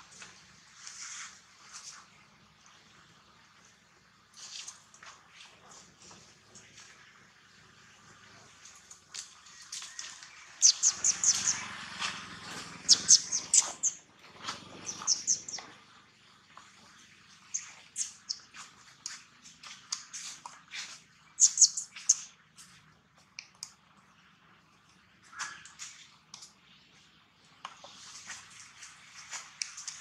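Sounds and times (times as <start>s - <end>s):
high-pitched animal chirps: 10.6s - 11.6s, 12.9s - 14.0s, 14.9s - 15.6s, 21.4s - 22.2s.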